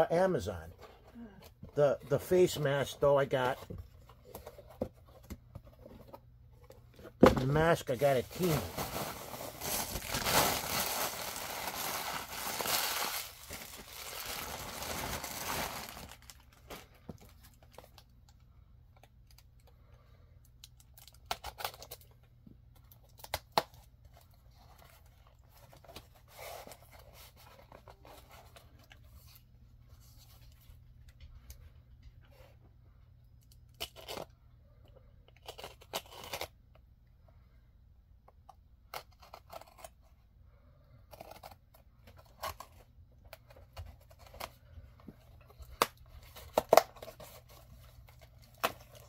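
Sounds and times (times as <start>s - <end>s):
small packets rustling: 7.4s - 17.8s
plastic packaging crinkling and tearing: 7.6s - 18.0s, 45.4s - 49.0s.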